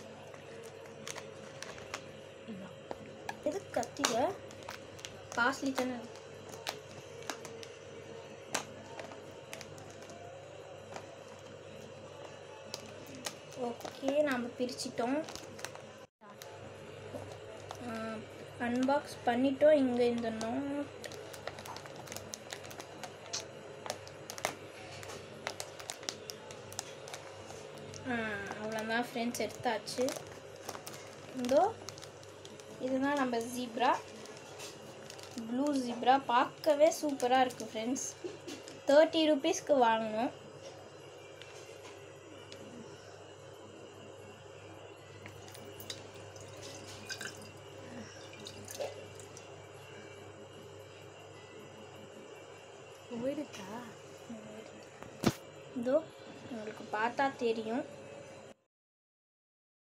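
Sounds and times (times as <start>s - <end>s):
plastic bag crinkling: 0.0s - 2.2s, 2.8s - 10.3s, 10.9s - 16.5s, 20.0s - 37.8s, 45.2s - 49.4s
water trickling into glass jar: 45.5s - 49.4s.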